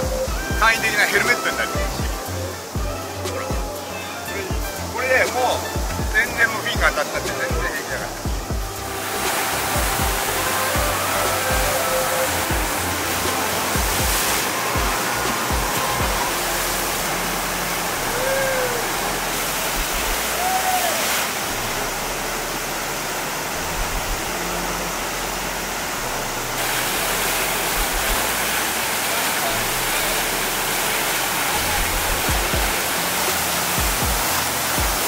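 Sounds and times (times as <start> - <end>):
background music: 0.0 - 35.0
water rushing: 0.0 - 35.0.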